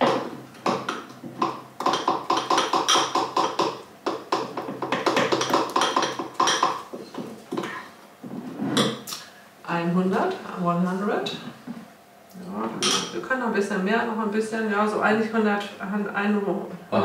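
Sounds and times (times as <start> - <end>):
utensils tapping dishes: 0.0 - 7.9, 12.8 - 13.2.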